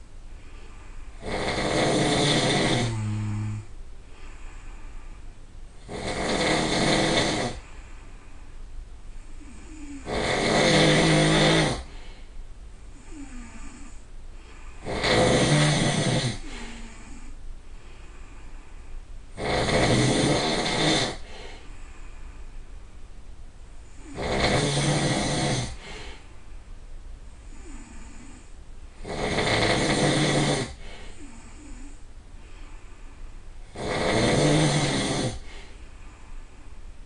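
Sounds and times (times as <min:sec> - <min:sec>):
quiet breathing: 0:00.0 - 0:37.0
person snoring loudly: 0:01.1 - 0:03.7, 0:05.8 - 0:07.6, 0:09.4 - 0:12.1, 0:13.0 - 0:14.0, 0:14.8 - 0:17.3, 0:19.4 - 0:21.6, 0:24.0 - 0:26.2, 0:27.4 - 0:32.0, 0:33.7 - 0:35.8.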